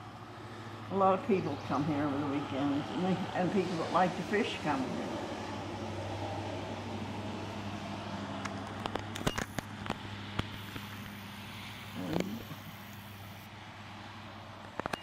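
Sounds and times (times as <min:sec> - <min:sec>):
low mechanical hum: 0:00.0 - 0:15.0
outdoor background noise: 0:00.0 - 0:15.0
sharp clicks and knocks: 0:08.4 - 0:10.9.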